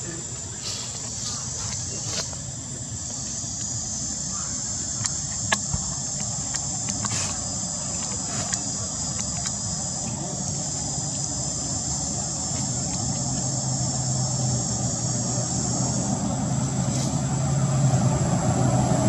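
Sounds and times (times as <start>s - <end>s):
high-pitched insect chorus: 0.0s - 19.0s
sharp clicks: 4.9s - 9.6s.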